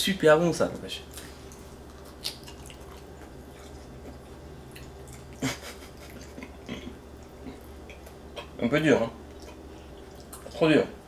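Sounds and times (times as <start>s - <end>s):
steady low hum: 0.0s - 11.0s
chewing beef jerky: 1.1s - 8.6s, 9.2s - 10.8s.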